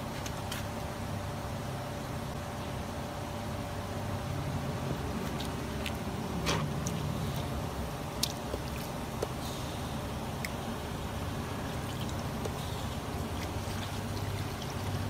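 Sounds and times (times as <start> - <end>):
hose water splashing on plastic mesh: 5.2 - 15.0.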